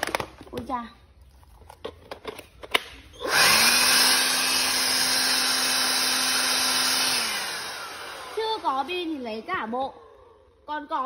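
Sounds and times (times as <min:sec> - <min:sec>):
dust blower running: 0:03.1 - 0:10.6.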